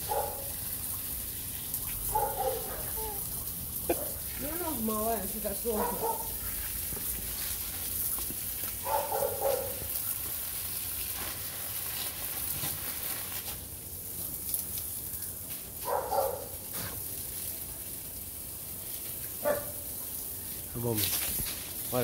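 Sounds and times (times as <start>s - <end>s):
dog barking: 0.0s - 0.5s, 2.1s - 4.2s, 5.7s - 6.4s, 8.8s - 10.0s, 15.8s - 16.6s, 19.4s - 20.0s
garden hose spray hissing: 0.0s - 22.0s.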